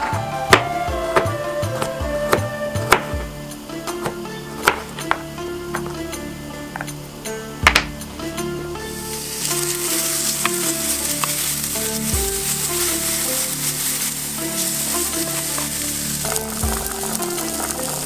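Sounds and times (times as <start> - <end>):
bacon sizzling in a pan: 8.9 - 18.0
spatula stirring in a pan: 8.9 - 18.0.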